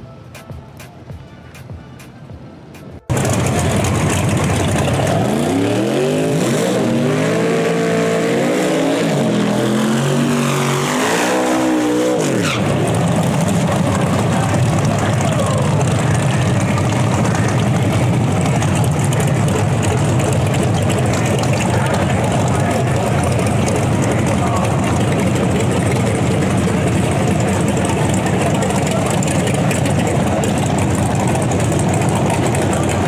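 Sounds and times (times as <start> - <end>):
truck engine revving: 2.8 - 33.0
tires spinning: 3.1 - 33.0.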